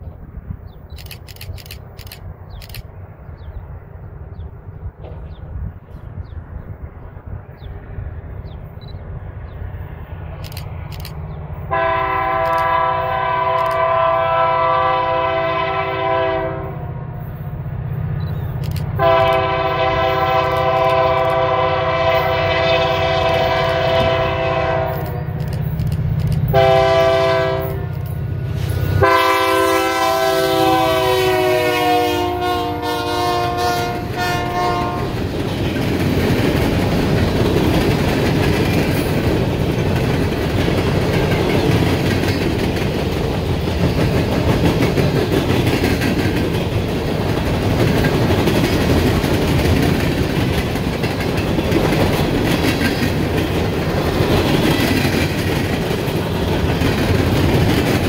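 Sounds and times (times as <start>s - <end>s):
locomotive engine rumble: 0.0s - 58.0s
locomotive air horn blasts: 11.7s - 16.8s, 19.0s - 25.3s, 26.5s - 28.0s, 28.7s - 35.2s.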